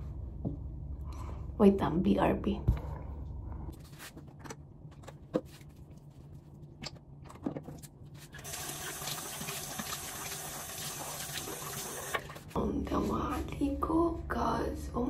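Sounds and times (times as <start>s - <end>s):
sink tap running: 8.4s - 12.3s.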